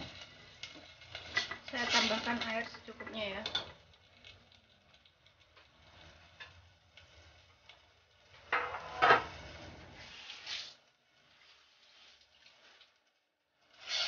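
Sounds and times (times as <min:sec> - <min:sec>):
cookware clatter: 0:01.3 - 0:03.8, 0:08.5 - 0:09.4.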